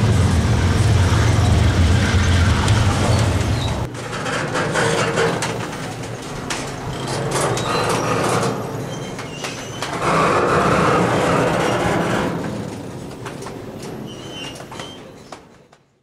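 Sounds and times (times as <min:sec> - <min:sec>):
train cars clanking: 0:00.0 - 0:15.9
train wheels rolling on rail: 0:00.0 - 0:16.0
wheel squeals: 0:02.2 - 0:03.9, 0:06.9 - 0:12.5, 0:14.0 - 0:15.4.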